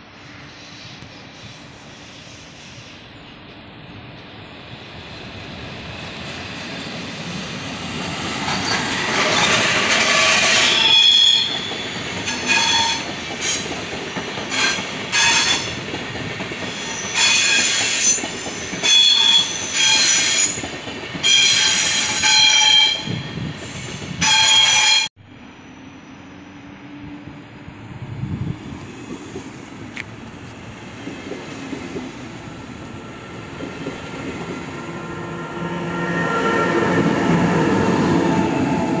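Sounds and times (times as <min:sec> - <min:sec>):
train rolling past: 0:00.0 - 0:39.0
train wheels squealing: 0:00.2 - 0:03.4, 0:08.4 - 0:27.2.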